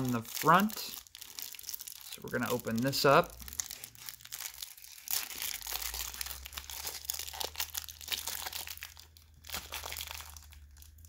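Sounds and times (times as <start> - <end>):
cellophane wrapper crinkling: 0.0 - 11.0.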